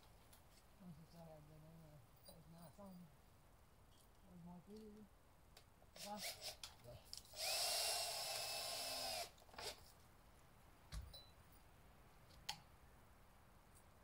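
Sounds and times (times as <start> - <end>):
power drill whining: 7.3 - 9.8.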